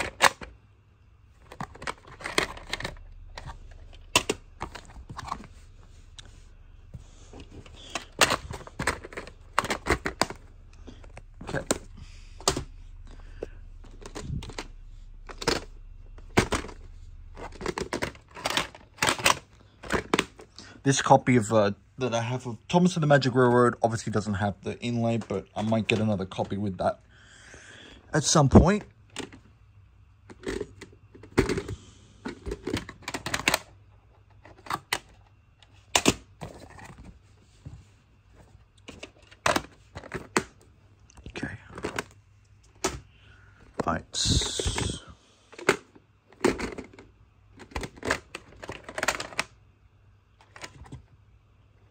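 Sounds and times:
plastic cases clacking: 0.0 - 0.6, 1.3 - 6.3, 6.9 - 20.6, 28.5 - 29.5, 30.2 - 37.2, 38.4 - 49.6, 50.4 - 51.2.

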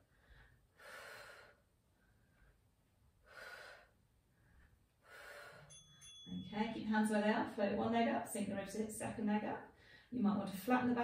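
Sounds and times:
woman breathing hard: 0.0 - 2.6, 3.2 - 5.8.

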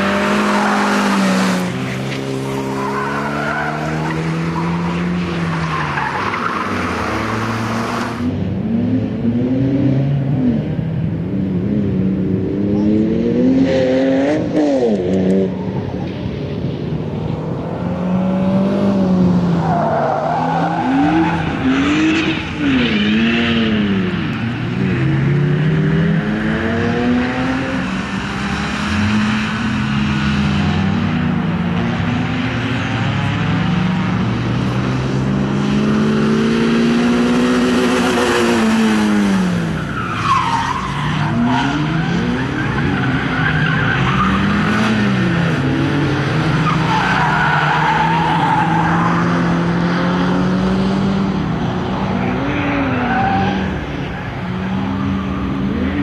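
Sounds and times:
car engine revving hard: 0.0 - 8.2.

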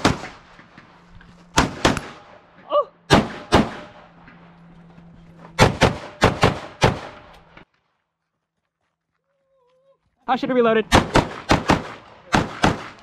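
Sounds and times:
pistol shots: 0.0 - 0.4, 1.5 - 2.4, 3.1 - 4.1, 5.6 - 7.3, 10.9 - 13.0.

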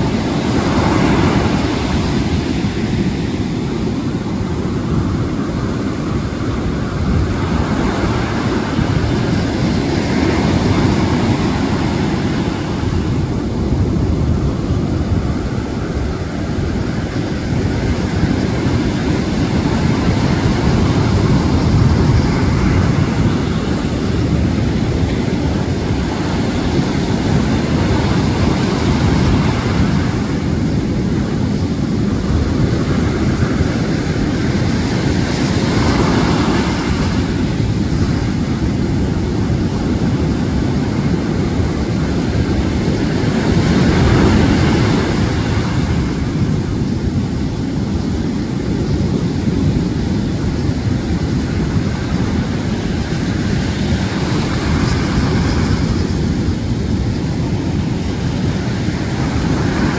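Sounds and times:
storm surf waves crashing: 0.0 - 59.9.

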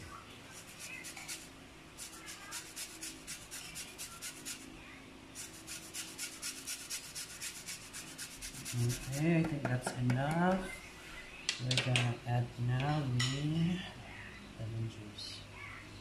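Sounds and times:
lemon rind rasping on grater: 0.6 - 4.6, 5.4 - 9.2.

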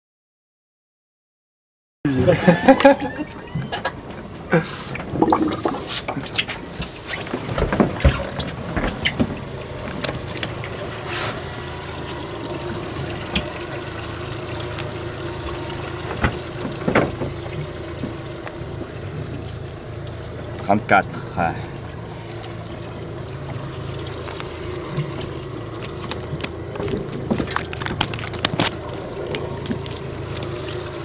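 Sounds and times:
water splashing and trickling: 2.8 - 31.0
steady low hum: 9.3 - 31.0.

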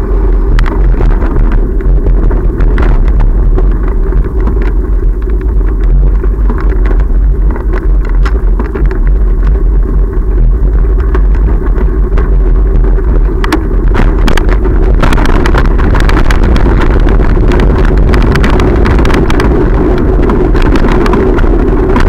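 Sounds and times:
bicycle clicks and rattles: 0.0 - 22.0
bicycle road rumble: 0.0 - 22.0
wind on microphone: 0.0 - 22.0.

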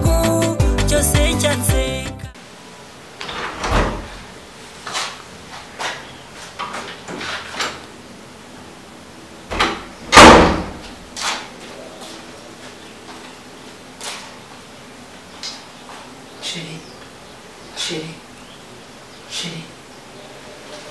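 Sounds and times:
door banging shut: 3.2 - 4.3, 9.5 - 11.4
door knocks and thuds: 9.5 - 10.9.

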